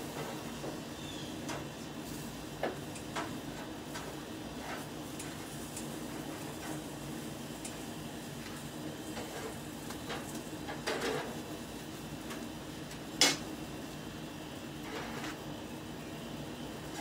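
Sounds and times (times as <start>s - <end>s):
steady low hum: 0.0s - 17.0s
metal utensil scraping on grill: 0.1s - 7.0s, 8.5s - 11.4s, 14.8s - 15.4s.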